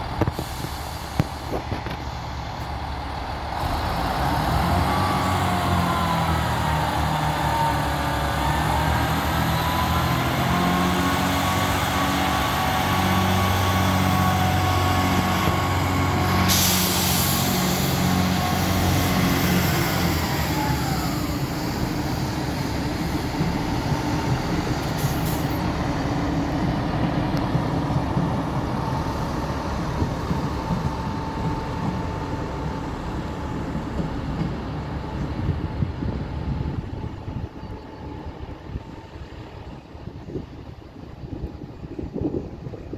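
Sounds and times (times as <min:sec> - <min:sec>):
train diesel engines running: 0:00.0 - 0:42.9
train rumble: 0:00.0 - 0:42.9
burst of hissing: 0:16.4 - 0:19.2.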